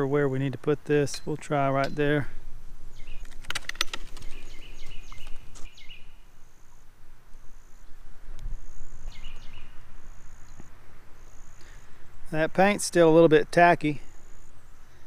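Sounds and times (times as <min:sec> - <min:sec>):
insects chirping: 0:02.9 - 0:12.3, 0:14.0 - 0:15.0.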